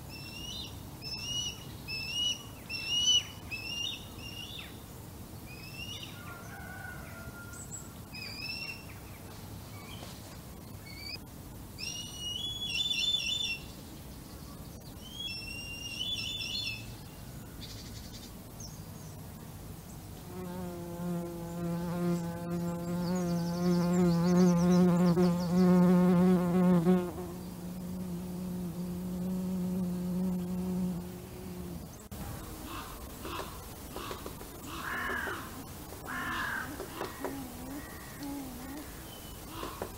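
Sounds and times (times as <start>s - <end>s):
bird chicks whistling calls: 11.8s - 13.7s
insect buzzing: 20.2s - 39.9s.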